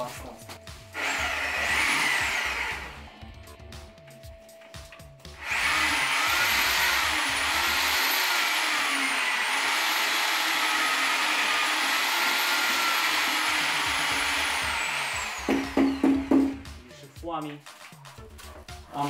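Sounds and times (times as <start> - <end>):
electric drill motor whining: 0.9 - 3.2, 5.4 - 16.8.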